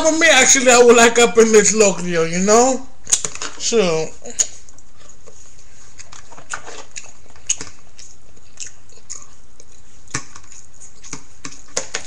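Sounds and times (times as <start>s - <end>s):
person chewing: 4.2s - 12.0s.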